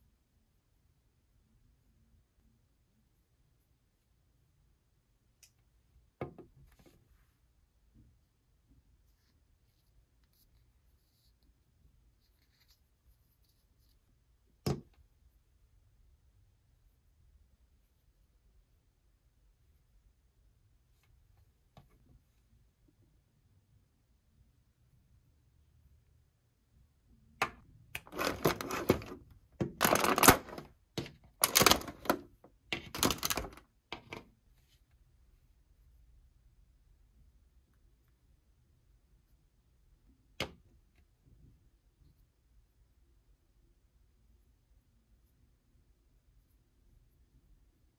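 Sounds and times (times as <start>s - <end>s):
hands handling plastic figurine: 27.4s - 34.4s
plastic tray crinkling: 28.0s - 30.7s, 31.4s - 34.2s.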